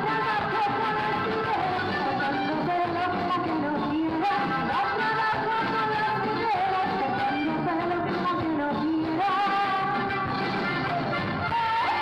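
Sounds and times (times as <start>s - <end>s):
women singing: 0.0s - 10.3s, 11.5s - 12.0s
accordion: 0.0s - 12.0s
drums: 0.0s - 12.0s
electric guitar: 0.0s - 12.0s.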